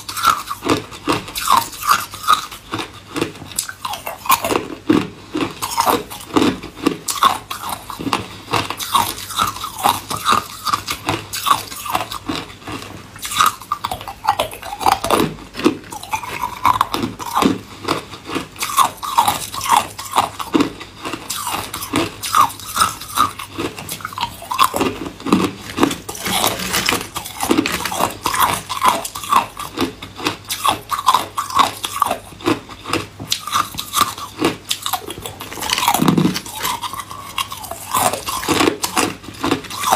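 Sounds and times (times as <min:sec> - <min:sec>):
ice cubes crunched between teeth: 0:00.0 - 0:39.9.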